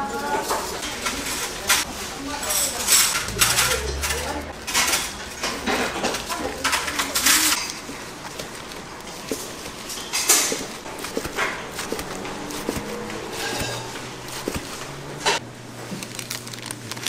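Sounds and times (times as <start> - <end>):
short rustling: 8.5 - 15.4.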